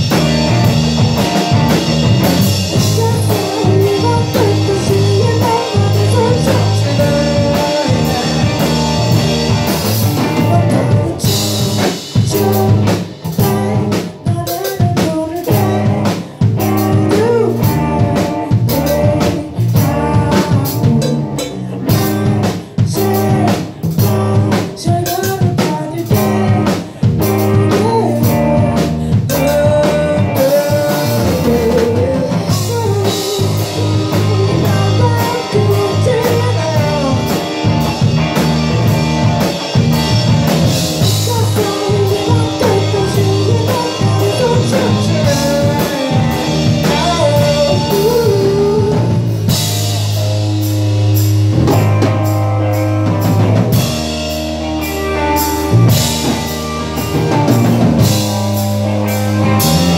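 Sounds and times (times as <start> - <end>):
live rock band playing: 0.0 - 59.9
woman singing lead: 2.5 - 49.7.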